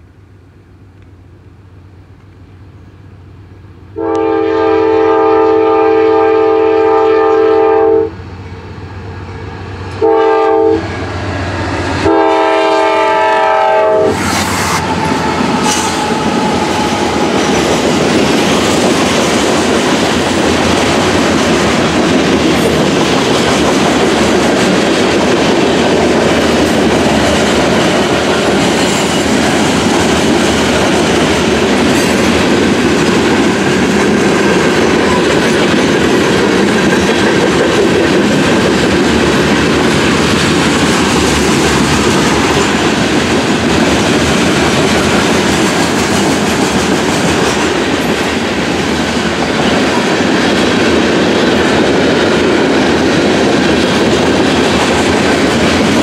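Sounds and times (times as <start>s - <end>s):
train rumbling past: 0.0s - 56.0s
locomotive air horn blasts: 4.0s - 8.2s, 10.0s - 11.0s, 12.0s - 14.2s
wheels clacking on rails: 9.2s - 56.0s.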